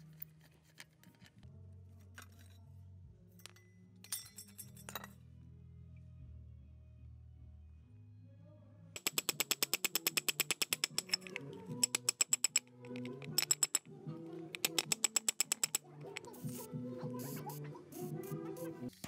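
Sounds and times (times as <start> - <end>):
background music: 0.0 - 19.0
hammer tapping chisel on metal: 9.0 - 13.9, 14.5 - 16.3.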